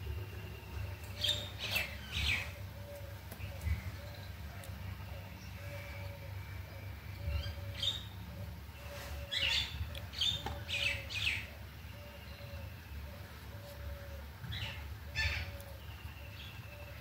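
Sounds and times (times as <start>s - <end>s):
birds chirping: 0.0s - 17.0s
low steady hum: 0.0s - 17.0s.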